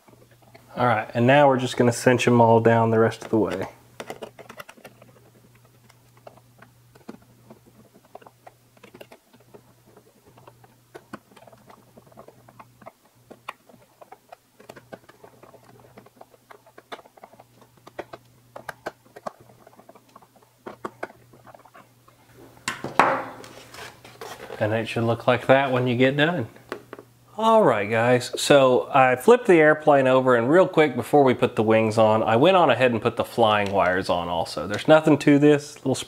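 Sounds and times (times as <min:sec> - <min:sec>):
faint steady hum: 0:00.0 - 0:36.0.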